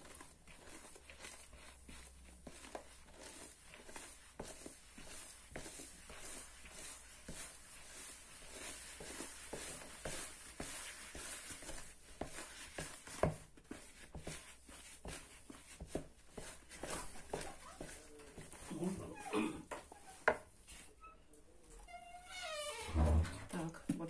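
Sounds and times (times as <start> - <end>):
spoon scraping plastic bowl: 0.0 - 19.1.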